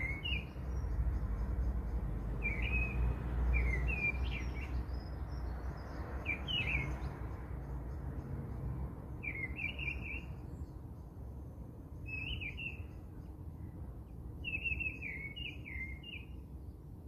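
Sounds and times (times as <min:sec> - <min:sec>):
bird chirping: 0:00.0 - 0:17.0.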